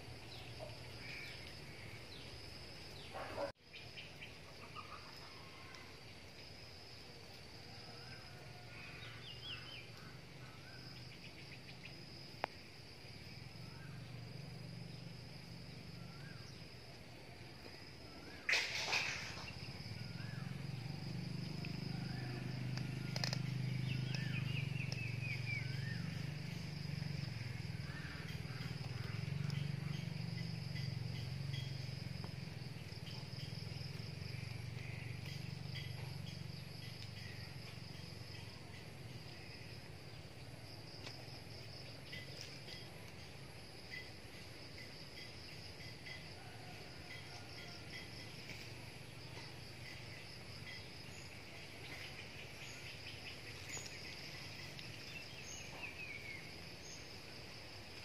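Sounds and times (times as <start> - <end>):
insects chirring: 0.0 - 58.0
bird chirps: 23.0 - 26.7.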